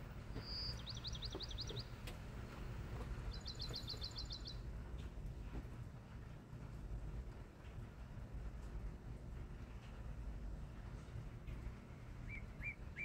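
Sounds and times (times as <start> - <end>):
songbird singing: 0.0 - 4.7, 12.1 - 13.0
low background noise: 0.0 - 13.0.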